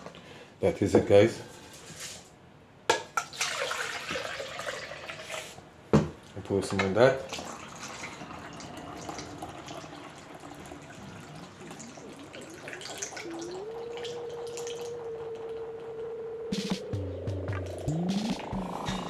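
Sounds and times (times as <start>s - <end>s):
juice trickling into bottle: 7.3s - 15.0s
steady tone: 12.4s - 19.0s.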